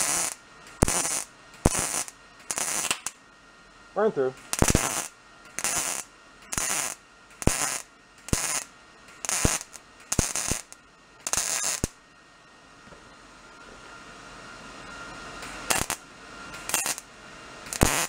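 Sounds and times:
welder arc crackling: 0.0 - 3.2, 4.1 - 12.0, 14.8 - 18.0.

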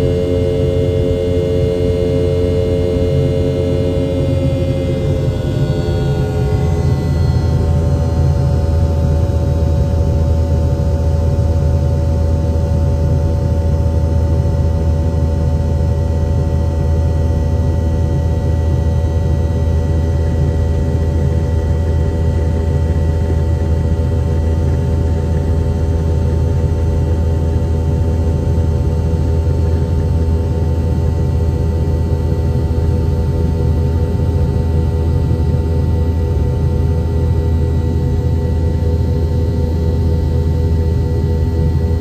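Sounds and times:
jet engine whining tones: 0.0 - 10.5
jet engine rumble: 0.0 - 42.0.

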